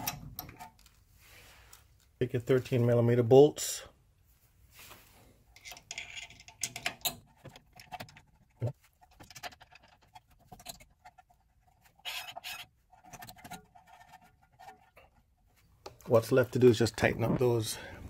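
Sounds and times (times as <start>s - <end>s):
light metallic clicks and scrapes: 4.8s - 16.8s.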